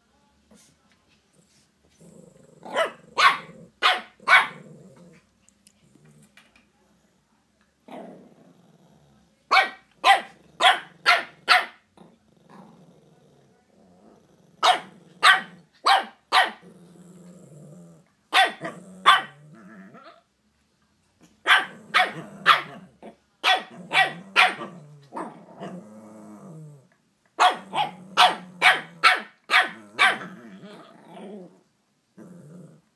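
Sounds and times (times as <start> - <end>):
dog growling low: 1.9 - 3.8, 4.5 - 6.4, 7.9 - 9.3, 12.0 - 15.7, 16.6 - 20.2, 23.7 - 27.0, 29.8 - 31.6, 32.2 - 32.9
dogs barking sharply: 2.7 - 4.6, 9.5 - 11.8, 14.6 - 16.6, 18.3 - 19.4, 21.4 - 22.8, 23.4 - 25.3, 27.4 - 30.3.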